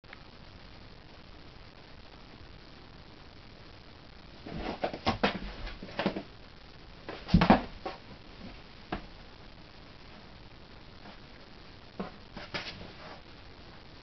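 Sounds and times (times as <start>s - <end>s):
cat scuffling in cardboard box: 4.4s - 6.2s, 12.0s - 13.2s.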